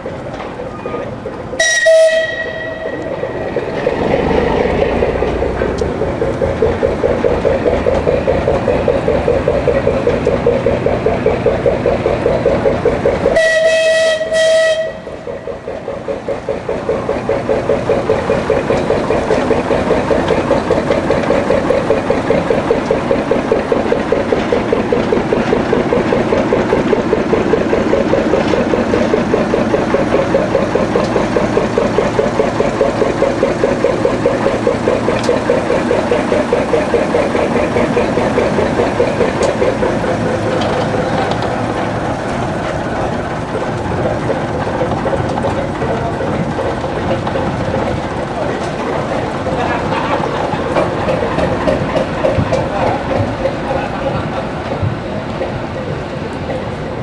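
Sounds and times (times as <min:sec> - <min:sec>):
steam exhaust chuffs: 0:00.0 - 0:57.0
steam locomotive whistle: 0:01.6 - 0:03.3, 0:13.3 - 0:15.3.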